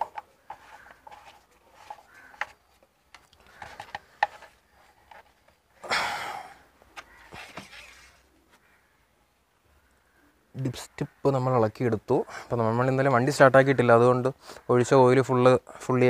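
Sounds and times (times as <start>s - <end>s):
plastic cap being screwed shut: 0.0s - 5.3s.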